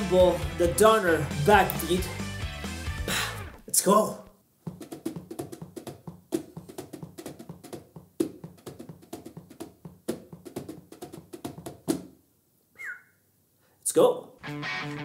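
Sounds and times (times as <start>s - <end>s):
fingers tapping drum pads: 4.6s - 12.1s.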